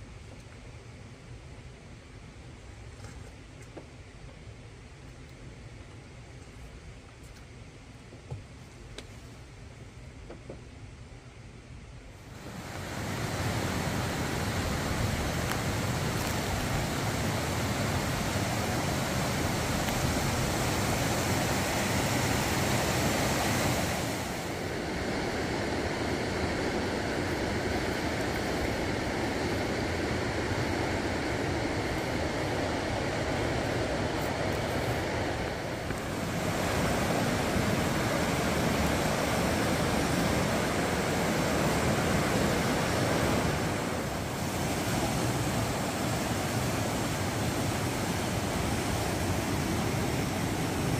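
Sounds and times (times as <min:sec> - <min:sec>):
water rushing: 0:12.2 - 0:50.9.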